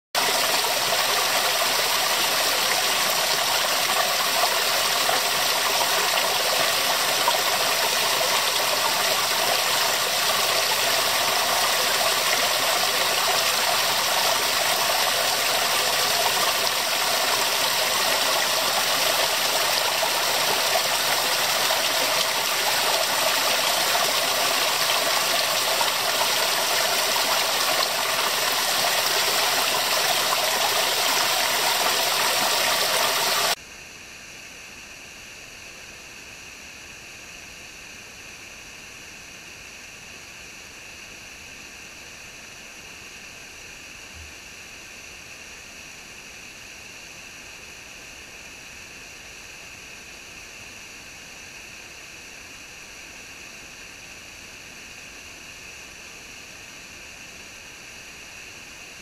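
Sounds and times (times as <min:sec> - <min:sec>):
waterfall splashing into pool: 0:00.2 - 0:33.6.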